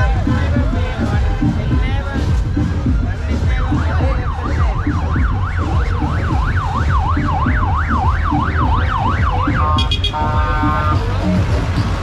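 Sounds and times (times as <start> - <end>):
loud music with bass beat: 0.0 - 12.0
electronic yelp siren: 3.8 - 11.0.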